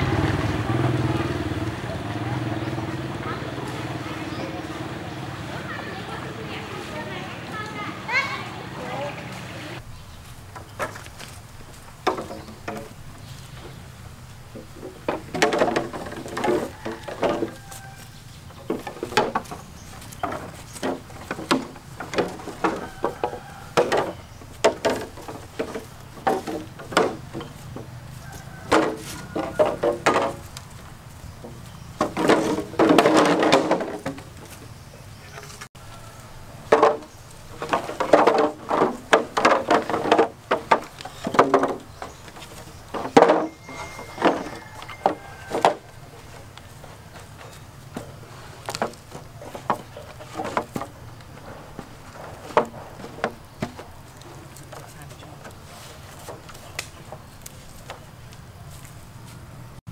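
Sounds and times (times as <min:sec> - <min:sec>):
bamboo poles knocking: 0:10.5 - 0:13.8, 0:14.4 - 0:34.7, 0:36.6 - 0:58.4.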